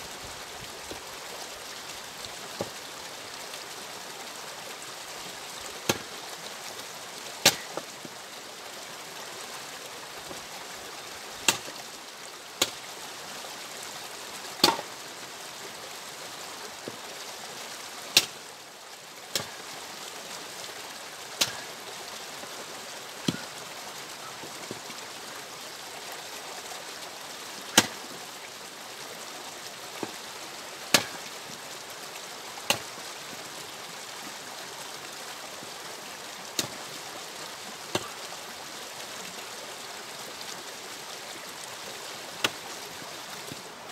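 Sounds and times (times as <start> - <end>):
axe splitting firewood: 7.4 - 7.8, 11.4 - 11.7, 14.6 - 14.9, 27.8 - 28.0, 30.9 - 31.2, 42.4 - 42.6.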